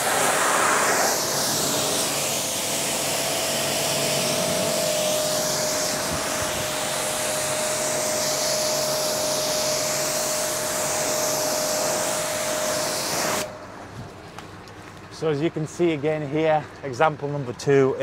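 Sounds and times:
pressure washer water spray hiss: 0.0s - 13.6s
pressure washer machine whine: 0.0s - 14.0s.

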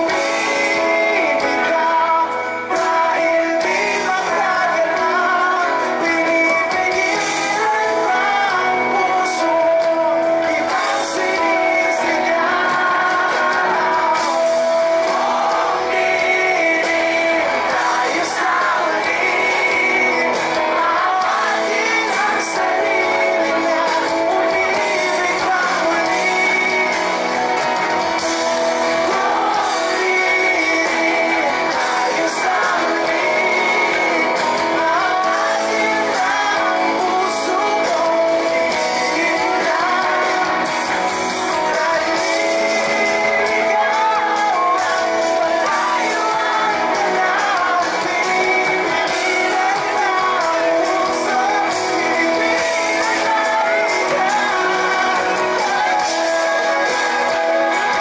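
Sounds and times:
live pop-rock band: 0.0s - 58.0s
man singing: 0.0s - 58.0s.

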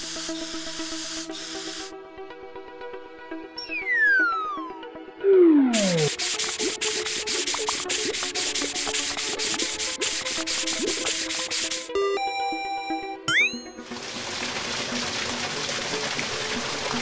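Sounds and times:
light background music: 0.0s - 17.0s
falling whistle-like glide: 3.6s - 6.0s
sponge scrubbing: 5.8s - 11.9s.

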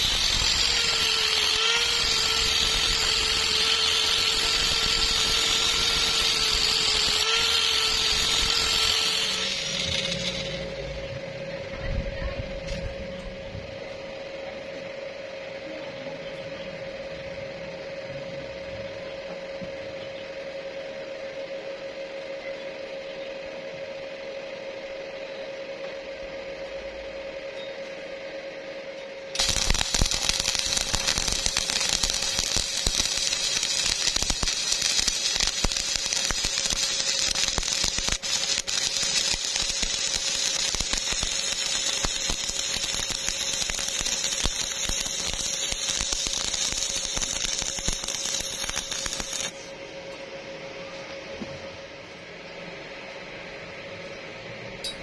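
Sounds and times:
welding arc crackling and sizzling: 0.0s - 11.1s, 29.3s - 49.7s
steady hum: 0.0s - 55.0s.

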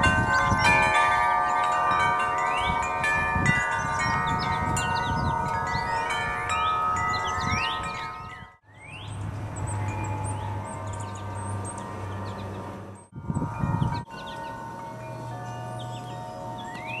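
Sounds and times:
wind chimes ringing: 0.0s - 17.0s
birds whistling: 2.4s - 3.0s, 3.7s - 13.1s, 13.8s - 17.0s.

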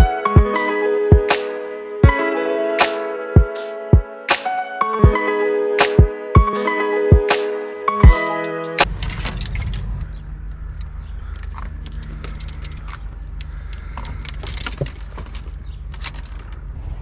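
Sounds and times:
fishing rods and reels rattling: 8.8s - 16.7s
low engine hum: 9.0s - 17.0s.

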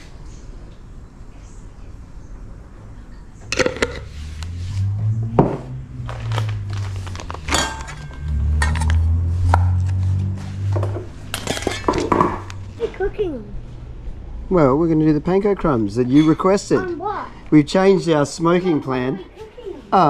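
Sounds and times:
dishes and utensils clinking: 3.5s - 4.1s, 7.4s - 9.0s, 11.3s - 12.5s
low rumble: 3.5s - 15.2s.

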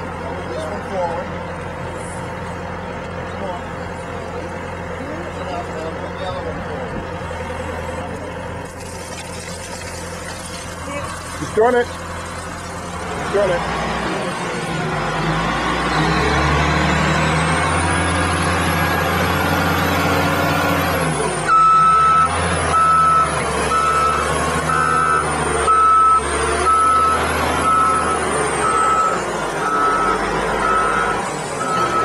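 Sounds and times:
diesel loader engine under load: 0.0s - 32.0s
reversing alarm beeping: 21.5s - 32.0s.

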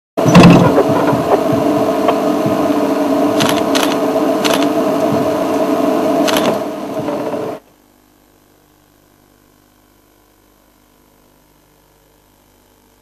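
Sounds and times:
mechanical hum: 0.2s - 13.0s
short sharp clicks: 3.4s - 4.7s, 6.3s - 6.6s.

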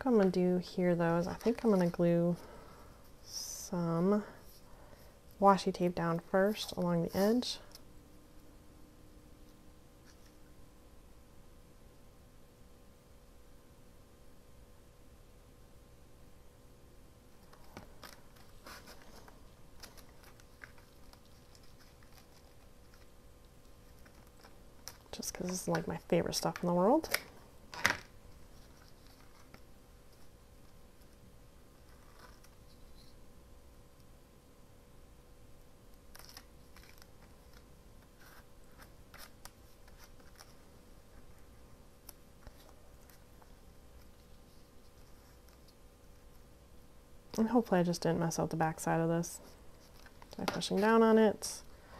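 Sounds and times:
paper and tape rustling: 17.4s - 31.2s, 31.8s - 33.2s, 36.1s - 46.4s, 49.4s - 51.0s.

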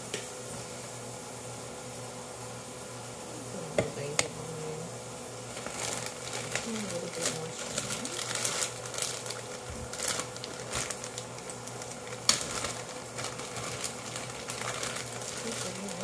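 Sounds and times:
plastic bag crinkling: 5.4s - 16.0s
bag seal clicking: 5.6s - 15.9s.

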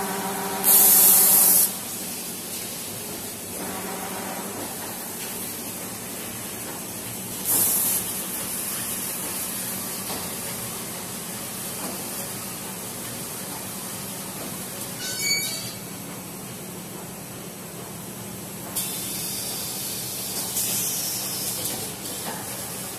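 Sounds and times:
compressed air hiss: 0.6s - 2.1s, 7.4s - 9.9s, 18.8s - 22.2s.

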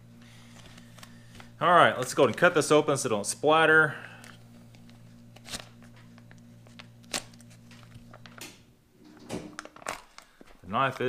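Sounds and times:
low hum: 0.0s - 10.0s
crisp clicks and crinkles: 0.5s - 2.6s, 4.2s - 8.5s, 9.5s - 11.0s
knife slicing foil pouch: 5.2s - 6.2s, 7.0s - 7.7s.

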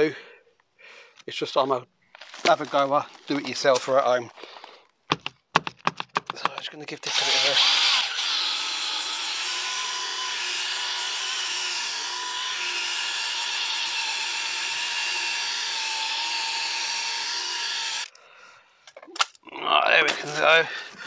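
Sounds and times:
cordless drill motor whine: 7.1s - 18.1s.

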